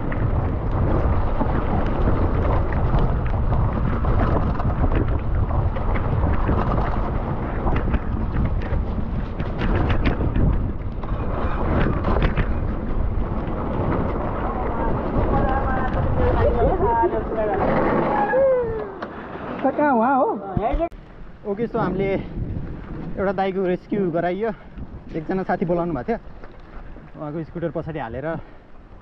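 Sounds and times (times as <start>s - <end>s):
bike rattling and clicking: 0.0s - 18.2s
wind buffeting microphone: 0.0s - 19.5s, 20.5s - 29.0s.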